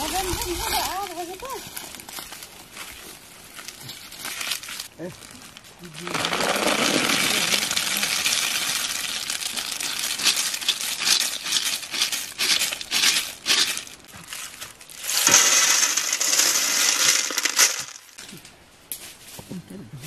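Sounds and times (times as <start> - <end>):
snail shells rattling: 6.0 - 18.3.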